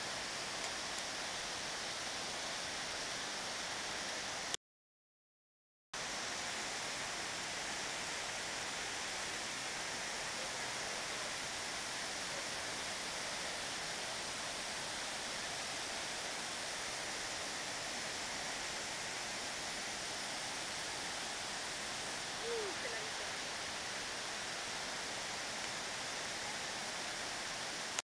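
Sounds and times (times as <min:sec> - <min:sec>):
waterfall rushing: 0:06.0 - 0:28.0.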